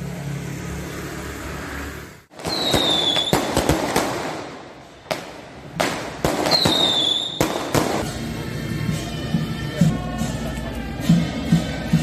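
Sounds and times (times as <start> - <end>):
firecrackers banging and crackling: 2.3 - 8.2
falling firework whistle: 2.4 - 3.7, 6.3 - 7.7.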